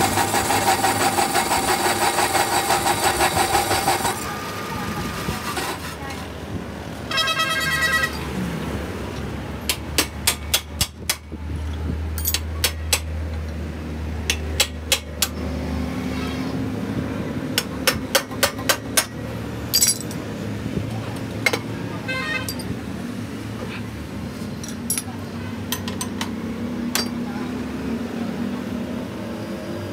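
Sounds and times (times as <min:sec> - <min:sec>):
metal taps and knocks: 0:25.7 - 0:27.2.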